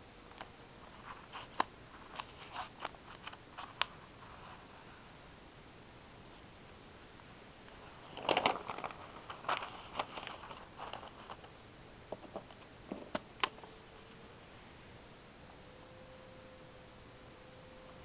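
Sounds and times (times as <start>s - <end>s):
paper pages rustling: 7.8s - 11.5s.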